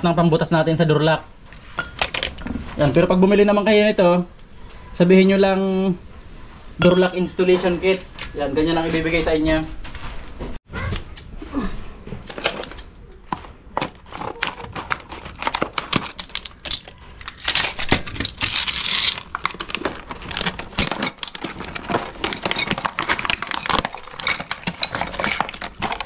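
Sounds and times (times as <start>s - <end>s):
plastic packaging crackling: 12.2s - 26.0s
plastic crinkling tear: 13.8s - 26.0s.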